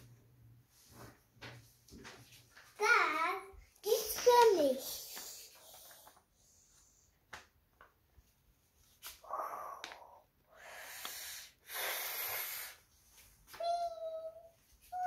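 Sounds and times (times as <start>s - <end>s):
breathy hissing exhalations: 9.2s - 12.9s.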